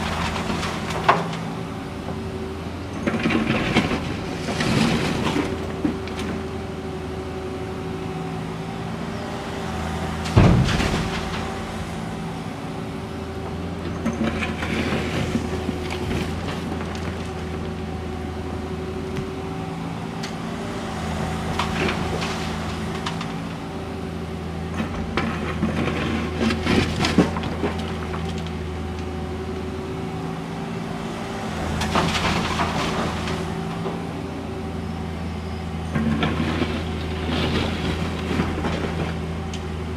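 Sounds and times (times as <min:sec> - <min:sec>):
excavator diesel engine running: 0:00.0 - 0:39.9
asphalt slabs clattering in truck bed: 0:02.9 - 0:06.5, 0:10.2 - 0:12.4, 0:31.6 - 0:34.0.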